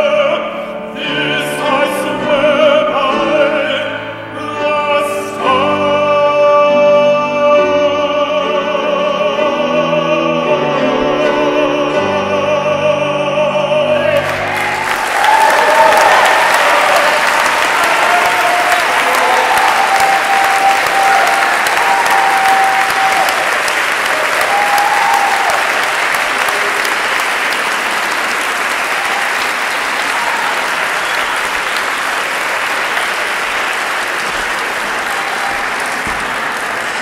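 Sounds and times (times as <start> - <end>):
audience applauding: 14.0 - 37.0.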